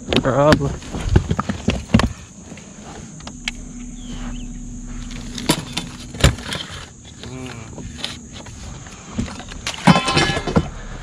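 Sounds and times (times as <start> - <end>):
gear knocking and rattling: 0.0 - 3.6
electric motor hum: 0.8 - 9.6.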